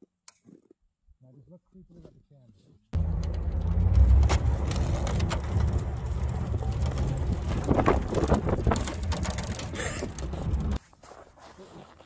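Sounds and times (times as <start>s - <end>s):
truck engine rumble: 3.0s - 10.8s.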